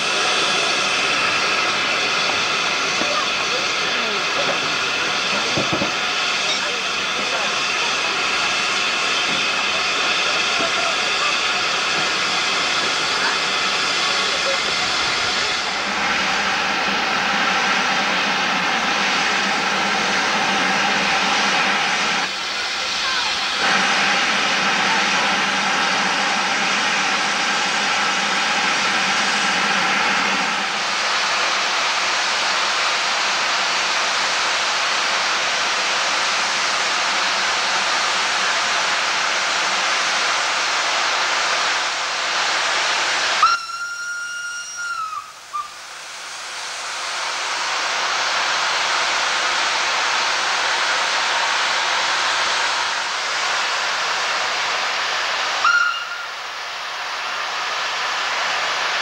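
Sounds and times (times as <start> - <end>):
hiss of escaping steam: 0.0 - 59.0
steam whistle: 43.4 - 45.8, 55.6 - 56.3.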